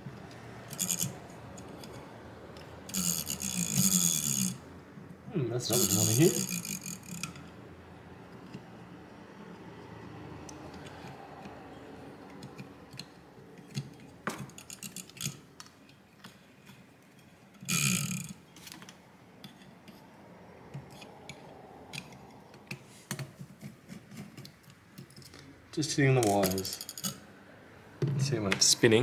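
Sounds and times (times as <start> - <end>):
screwdriver scrape: 0.7 - 2.0, 2.9 - 4.6.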